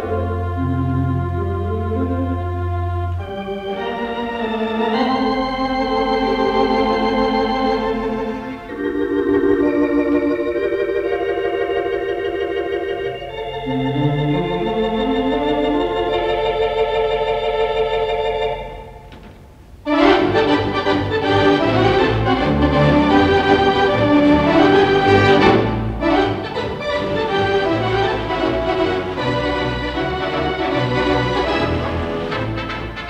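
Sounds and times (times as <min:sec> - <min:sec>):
theatre organ playing chords: 0:00.0 - 0:19.2, 0:19.8 - 0:33.0.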